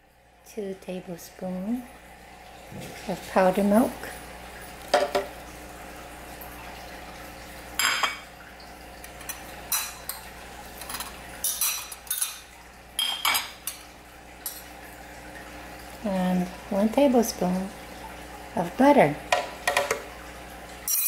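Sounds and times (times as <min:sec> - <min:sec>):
utensil clinking on dish: 0:10.8 - 0:13.8.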